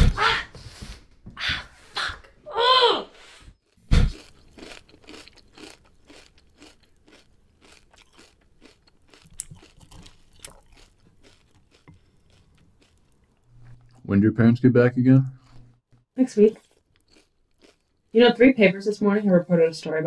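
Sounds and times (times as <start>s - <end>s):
person chewing crunchy food: 3.6s - 14.1s, 15.4s - 18.2s.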